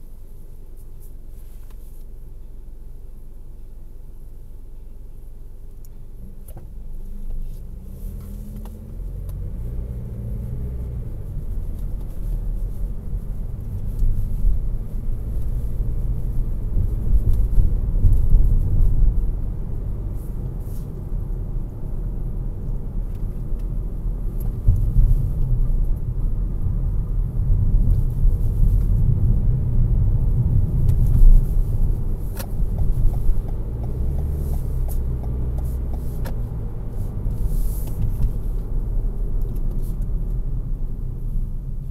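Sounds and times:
car cabin road and engine noise: 0.0 - 41.9.

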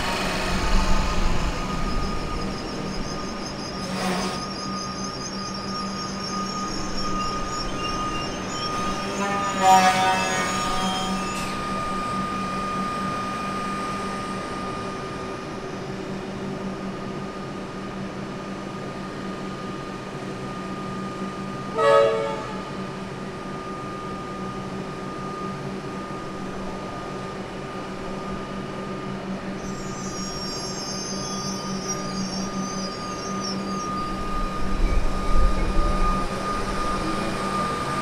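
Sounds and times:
train electrical hum: 0.0 - 38.0
train horn blast: 3.8 - 4.5, 9.0 - 11.6, 21.7 - 22.7.

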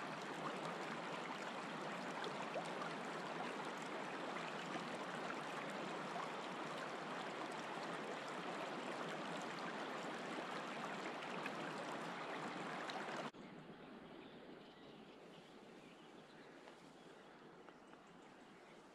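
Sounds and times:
river water rippling over stones: 0.0 - 13.3
quiet outdoor ambience: 0.0 - 18.9.

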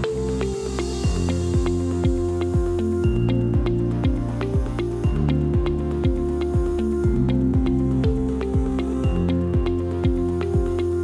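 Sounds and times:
upbeat electronic background music: 0.0 - 11.0.

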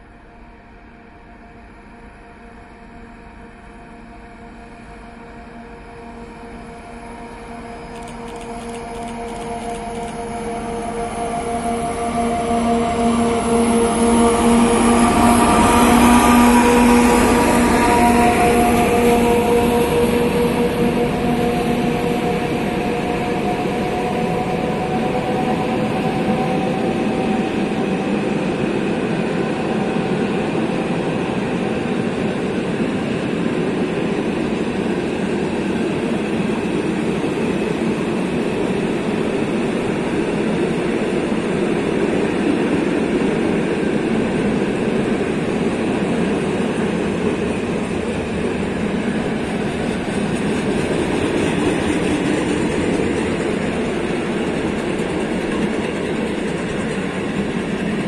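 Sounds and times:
freight train wheels clattering: 48.2 - 58.0.

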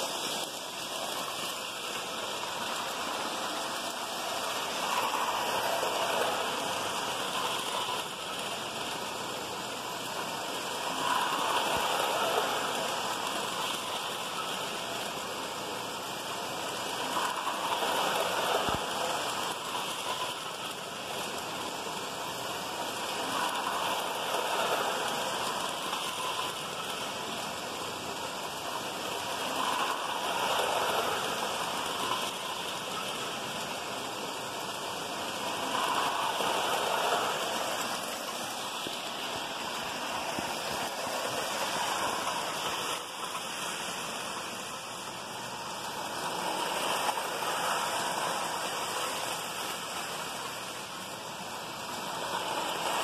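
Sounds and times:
toy trains whirring rumble: 0.0 - 53.0.

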